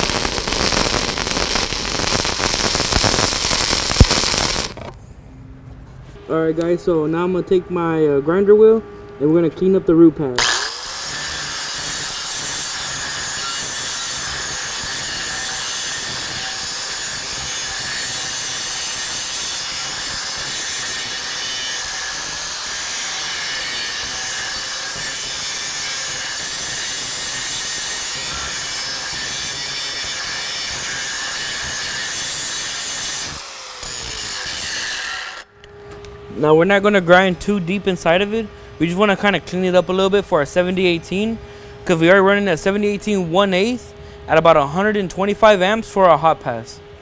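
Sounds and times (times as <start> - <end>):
angle grinder grinding steel: 0.0 - 4.9, 10.4 - 35.5.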